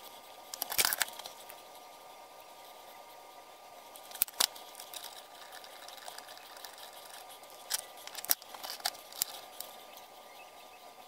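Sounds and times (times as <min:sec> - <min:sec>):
faint steady hum: 0:00.0 - 0:11.0
metal parts clicking and clinking: 0:00.5 - 0:01.6, 0:04.0 - 0:09.8.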